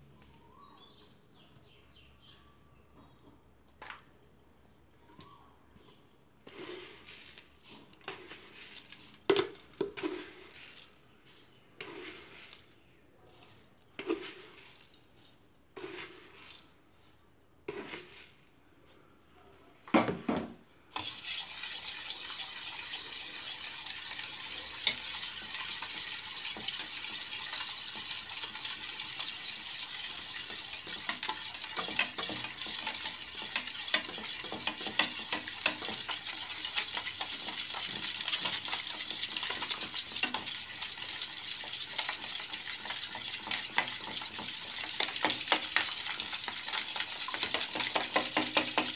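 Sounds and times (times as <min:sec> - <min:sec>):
spoon beating eggs in steel bowl: 0:21.0 - 0:48.9.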